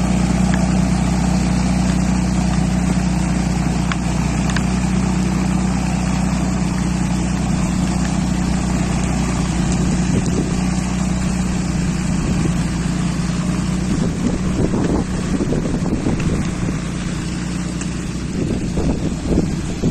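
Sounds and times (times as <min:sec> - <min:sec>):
branches scraping over ground: 0:00.0 - 0:19.9
diesel engine running: 0:00.0 - 0:19.9
wind buffeting microphone: 0:07.4 - 0:19.9.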